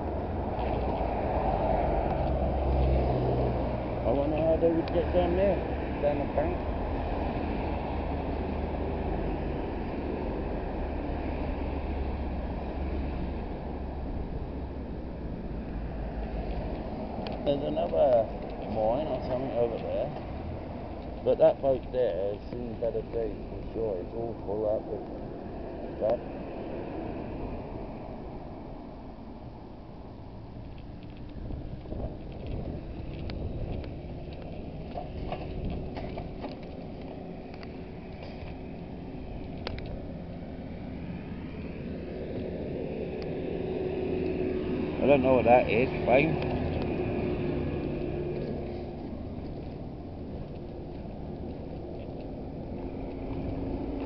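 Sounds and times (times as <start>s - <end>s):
wind buffeting microphone: 5.6s - 54.0s
footsteps walking: 47.8s - 54.0s.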